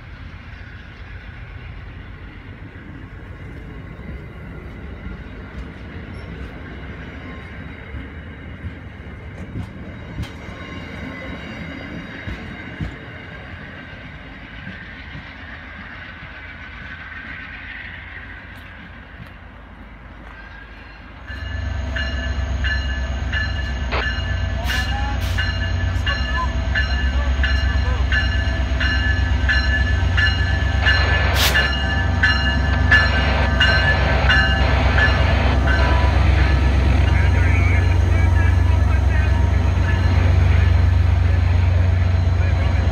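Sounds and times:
train cars rumbling past: 0:00.0 - 0:42.9
locomotive bell ringing: 0:20.9 - 0:42.9.

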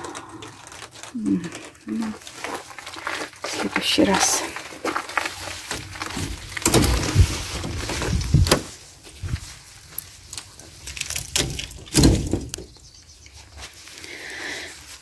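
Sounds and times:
greenhouse door knocking and rattling: 0:11.4 - 0:12.6.

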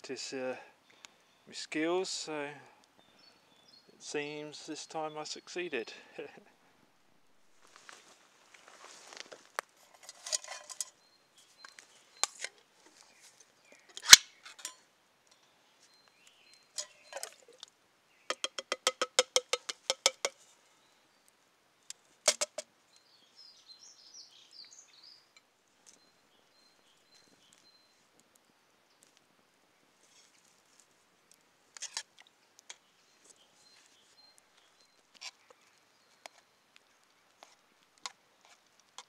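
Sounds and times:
can and mug handling clicks: 0:14.0 - 0:14.8.

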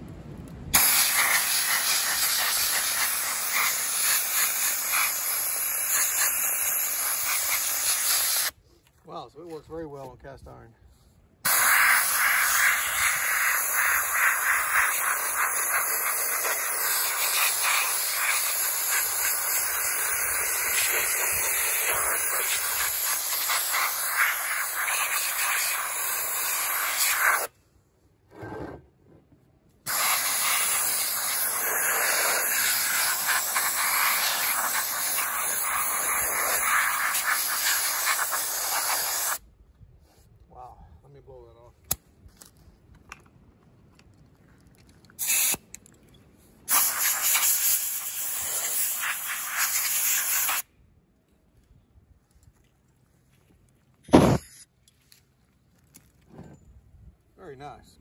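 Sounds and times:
compressed air hissing: 0:00.7 - 0:08.5, 0:11.4 - 0:27.5, 0:29.9 - 0:39.4, 0:45.2 - 0:45.6, 0:46.7 - 0:50.7.

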